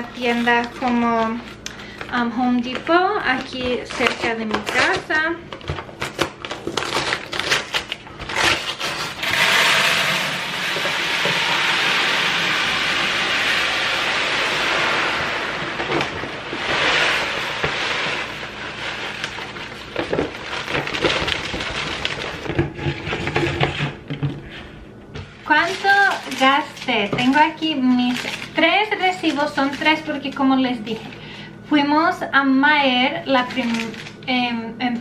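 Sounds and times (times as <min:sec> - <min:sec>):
paper bag crinkling: 0:00.0 - 0:10.0, 0:13.7 - 0:23.4, 0:25.4 - 0:31.1, 0:33.4 - 0:34.2
rice pouring into plastic bucket: 0:09.2 - 0:22.4.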